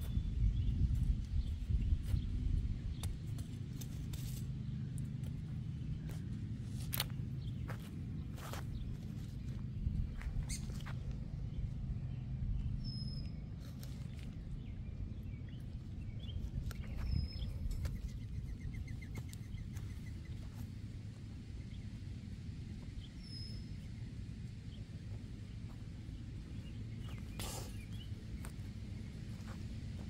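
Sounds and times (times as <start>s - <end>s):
light clicks and scrapes: 3.0s - 4.5s
bird chirps: 9.5s - 11.0s.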